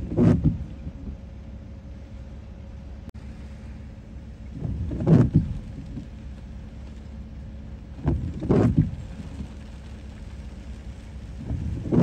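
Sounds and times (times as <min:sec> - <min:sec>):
hurricane wind and rain: 0:00.0 - 0:12.0
wind buffeting microphone: 0:04.5 - 0:06.4, 0:07.9 - 0:12.0.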